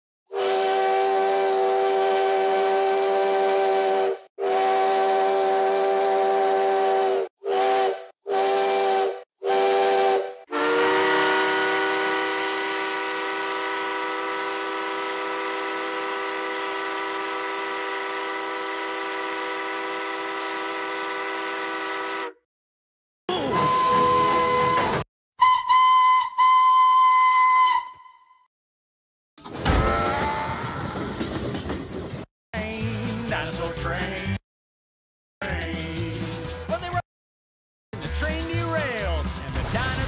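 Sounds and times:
steam locomotive chime whistle: 0.3 - 22.3, 23.4 - 28.4.

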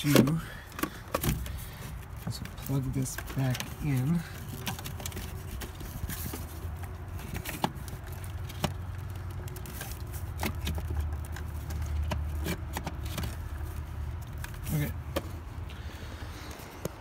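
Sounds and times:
small clicks and rustles: 0.7 - 14.9.

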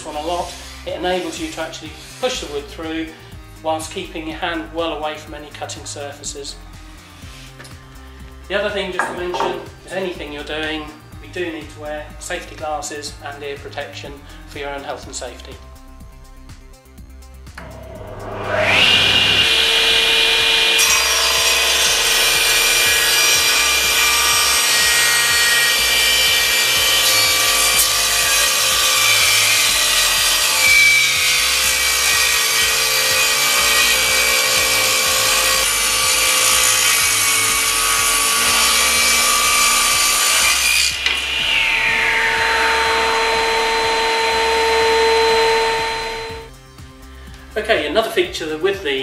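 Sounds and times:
table saw cutting wood: 0.0 - 3.2, 3.8 - 13.2, 17.5 - 46.6
saw blade spinning freely: 17.6 - 23.9.

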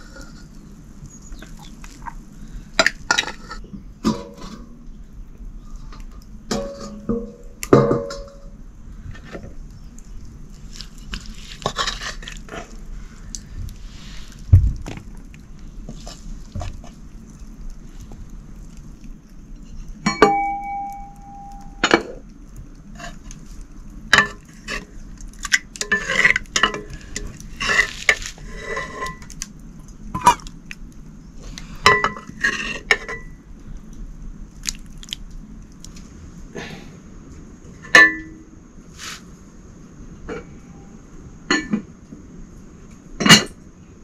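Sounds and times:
metal dishes clinking: 6.5 - 8.5.

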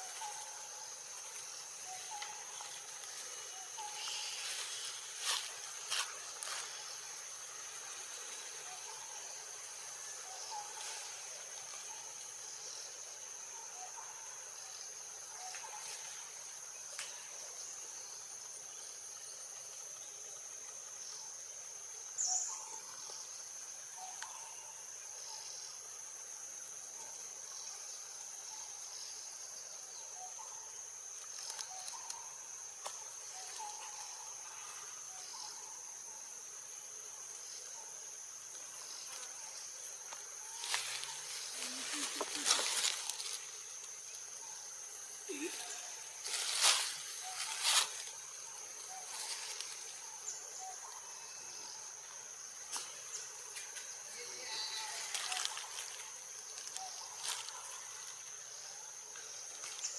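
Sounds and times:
high-pitched insect drone: 0.0 - 20.2, 38.6 - 59.9
faint short insect calls: 0.0 - 59.9.

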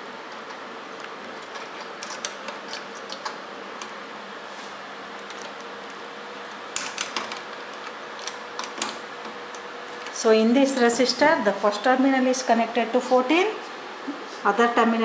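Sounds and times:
patch cords clicking and rattling: 6.3 - 10.2.

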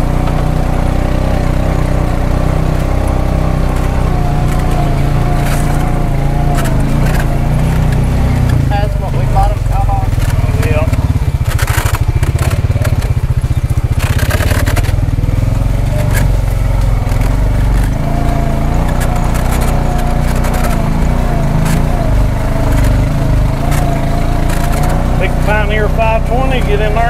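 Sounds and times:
vehicle motor low rumble: 0.0 - 27.0.

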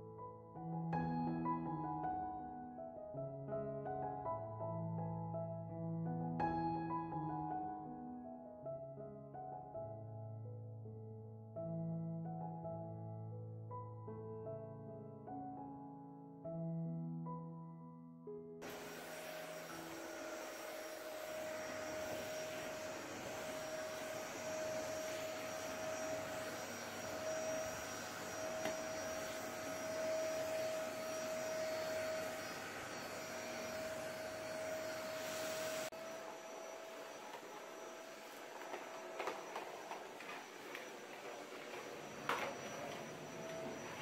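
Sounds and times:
vacuum cleaner running: 18.6 - 44.0.

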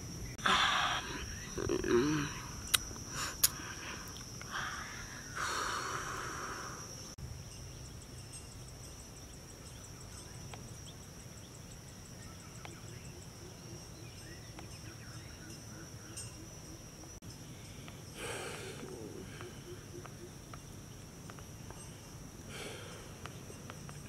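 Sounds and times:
insects droning high-pitched: 0.0 - 24.0
breathy rush of noise: 2.3 - 7.2.

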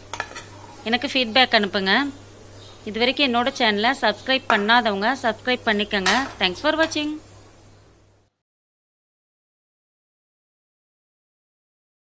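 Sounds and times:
faint room hum: 0.0 - 8.4.

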